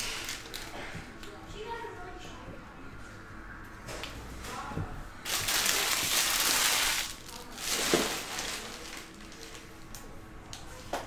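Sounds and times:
card packaging crinkling: 5.3s - 9.8s.

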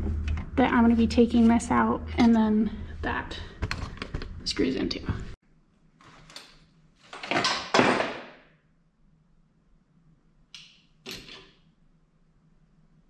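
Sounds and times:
rustling and scraping handling noise: 6.0s - 7.4s.

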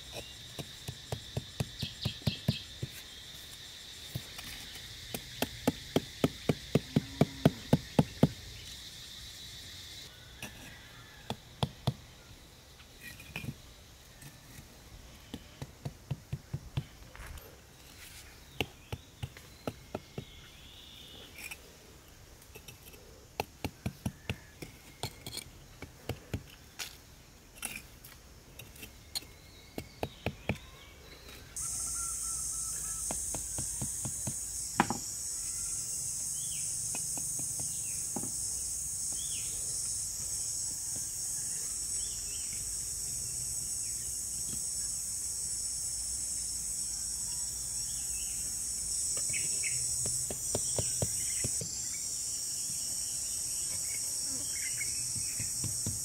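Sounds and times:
insects chirring: 0.0s - 56.0s
hand tool knocking on wood: 33.1s - 35.0s.

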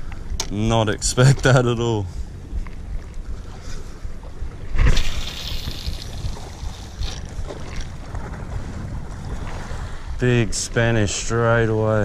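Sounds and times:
wind buffeting microphone: 2.1s - 12.0s
sea washing against rocks: 4.8s - 9.9s.

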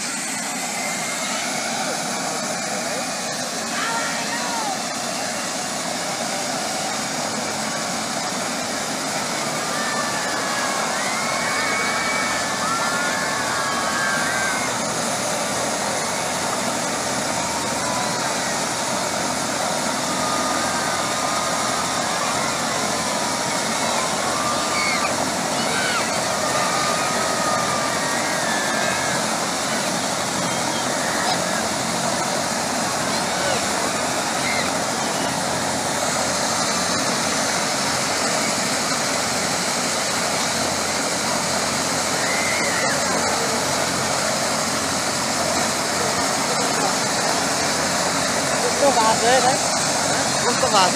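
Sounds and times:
helicopter turbine and rotor: 0.0s - 50.9s.

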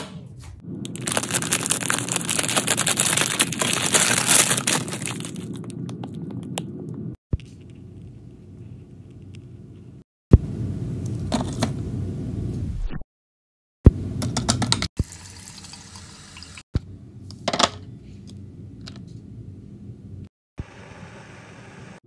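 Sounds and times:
tap water running into kettle: 15.0s - 16.6s.

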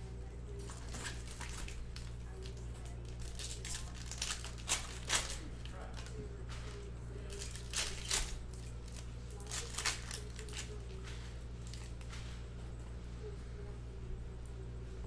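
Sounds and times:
steady low hum: 0.0s - 15.0s
plastic wrapper rustling: 0.5s - 12.2s.

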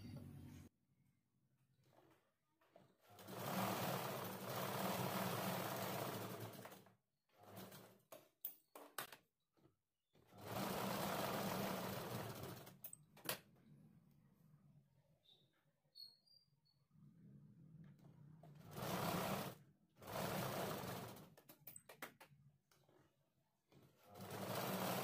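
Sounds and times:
sewing machine stitching: 3.0s - 8.2s, 10.3s - 13.0s, 18.4s - 21.8s, 23.8s - 25.0s.

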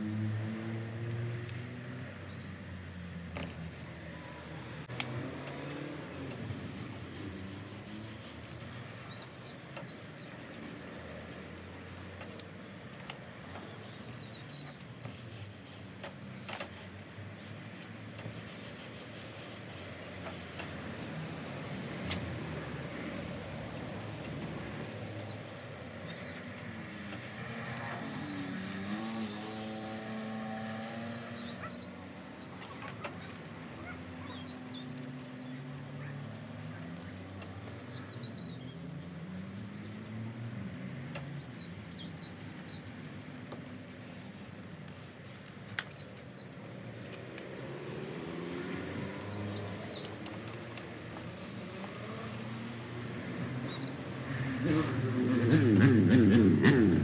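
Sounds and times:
distant traffic hum: 0.0s - 57.0s
small bird chirping: 8.3s - 11.5s, 24.8s - 37.2s, 37.8s - 40.0s, 41.2s - 43.5s, 45.0s - 52.6s.

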